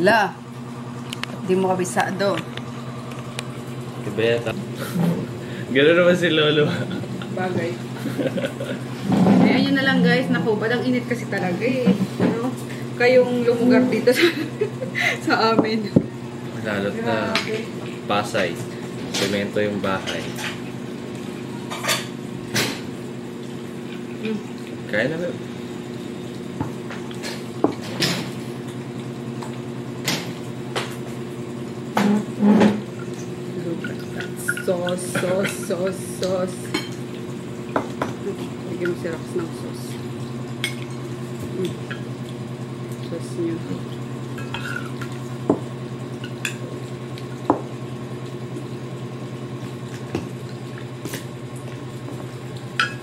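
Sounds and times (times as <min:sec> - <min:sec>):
steady hum: 0:00.0 - 0:53.0
spoon clinking against a pot: 0:44.4 - 0:45.1
dishes and utensils clattering: 0:44.4 - 0:45.2.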